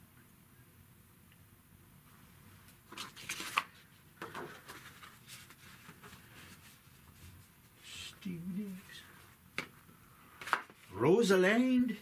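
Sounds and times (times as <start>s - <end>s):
drawing paper rustling: 2.8s - 7.8s.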